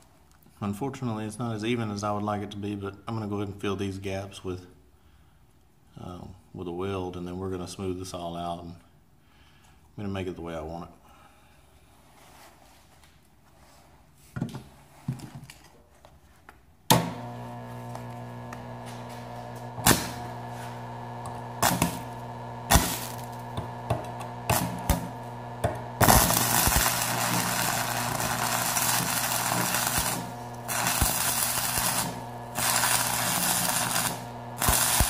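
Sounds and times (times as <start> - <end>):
welding arc striking cracks: 16.9 - 35.0
welding arc crackle: 17.0 - 35.0.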